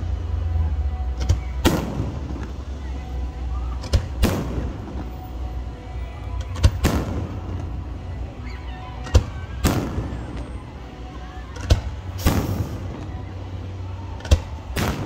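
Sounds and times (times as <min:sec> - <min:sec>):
music playing: 0:00.0 - 0:15.0
fireworks booming: 0:01.6 - 0:02.6, 0:03.8 - 0:05.2, 0:06.6 - 0:07.8, 0:09.2 - 0:10.4, 0:11.6 - 0:13.1, 0:14.2 - 0:15.0
fireworks hissing: 0:11.6 - 0:15.0.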